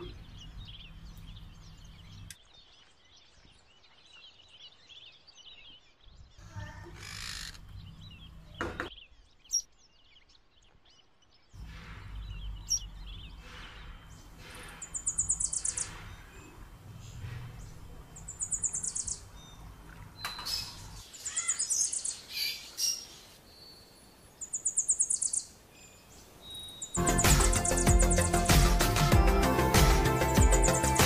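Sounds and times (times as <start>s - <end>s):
music: 27.0s - 31.0s.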